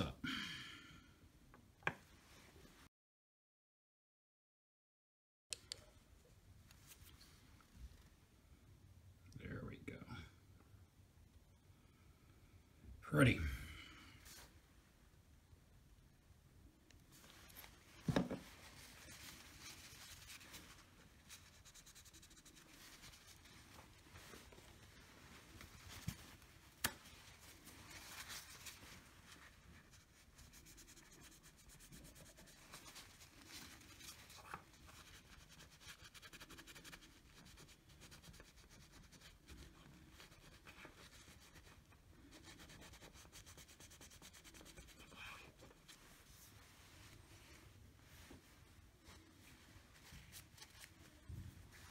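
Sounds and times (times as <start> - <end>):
faint rubbing and scraping: 17.1 - 51.9.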